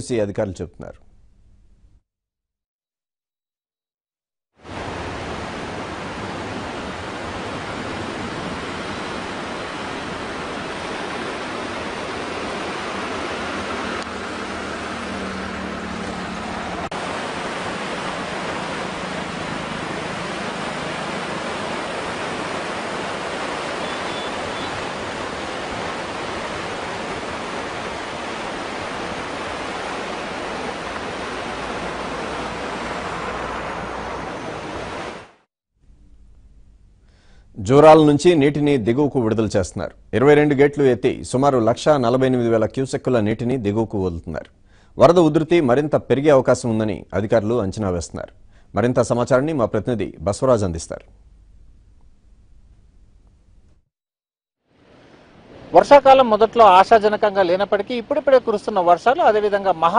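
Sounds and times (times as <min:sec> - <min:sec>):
floodwater rushing: 0:04.6 - 0:35.4, 0:54.8 - 0:59.9.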